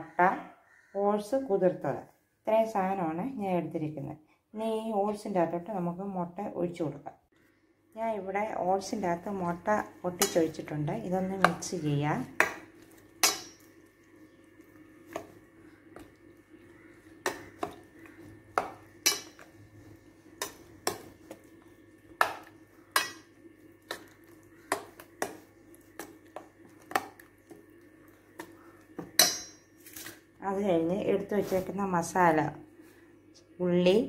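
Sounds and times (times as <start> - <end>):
spoon clinking in metal bowl: 13.2 - 13.7, 19.0 - 19.4, 23.0 - 23.4, 29.1 - 29.8.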